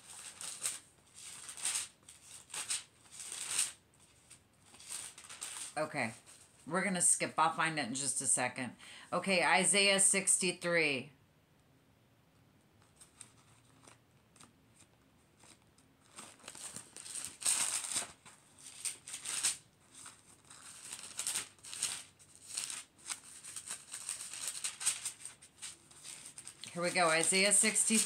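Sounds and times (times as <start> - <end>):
book pages rustling: 0.0 - 6.7, 12.8 - 28.0.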